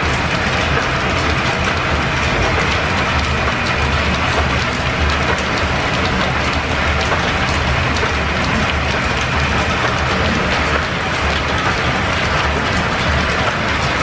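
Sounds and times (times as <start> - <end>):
line shaft mechanical rumble and clatter: 0.0 - 14.0.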